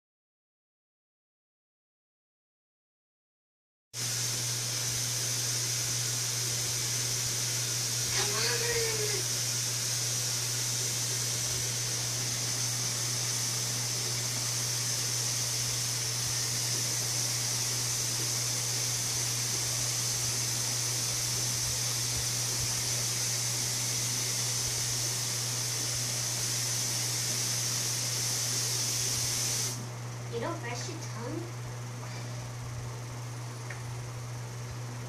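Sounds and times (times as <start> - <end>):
steady hiss: 4.0 - 31.3.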